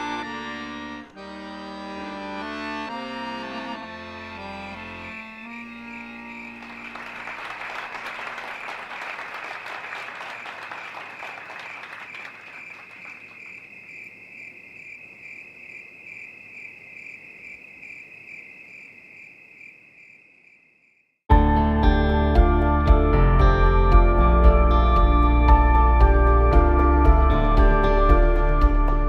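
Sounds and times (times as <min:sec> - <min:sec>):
crickets chirping: 0:04.7 - 0:07.4, 0:09.9 - 0:21.2
applause: 0:06.0 - 0:13.6.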